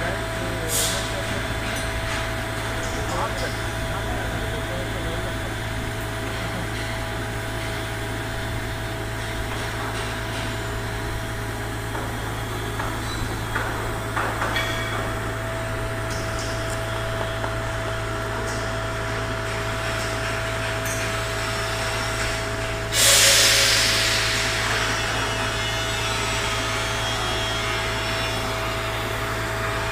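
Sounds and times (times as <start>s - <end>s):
machinery hum with thin tone: 0.0s - 29.9s
loud rushing hiss: 21.8s - 29.2s.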